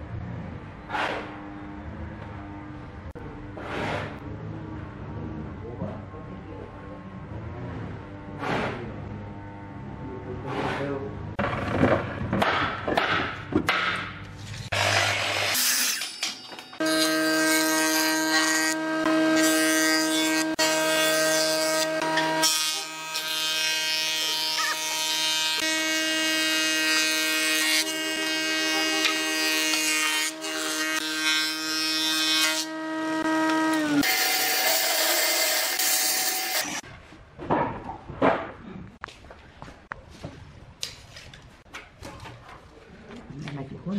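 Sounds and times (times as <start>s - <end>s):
saw motor whine: 14.7s - 36.8s.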